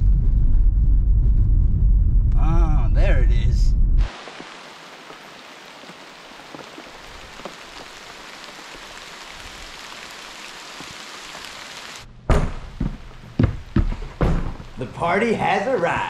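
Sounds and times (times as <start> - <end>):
steady hiss: 4.0 - 12.1
loud thumps: 12.2 - 14.8.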